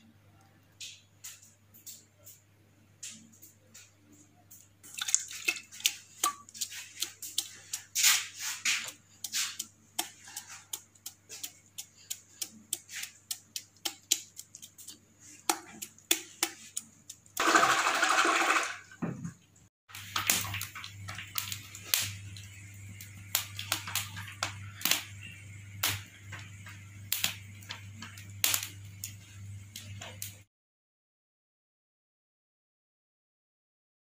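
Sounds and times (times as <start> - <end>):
hand splashing in buttermilk: 4.8 - 18.7.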